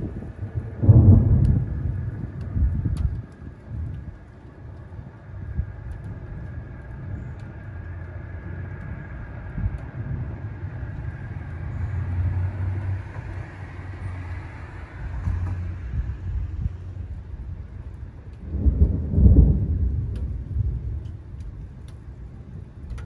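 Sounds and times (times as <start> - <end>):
distant thunder rumbling: 0.0 - 4.4, 18.3 - 23.0.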